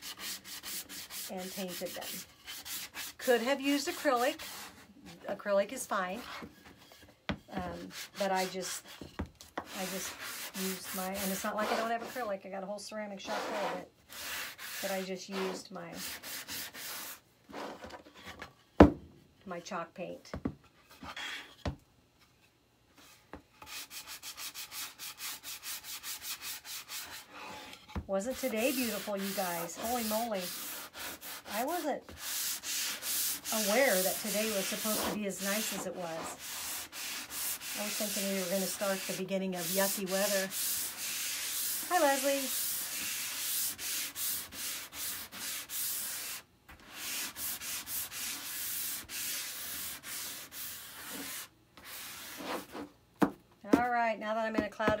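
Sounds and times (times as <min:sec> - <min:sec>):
sanding block rubbing wood: 0:00.0 - 0:04.7, 0:28.2 - 0:52.6.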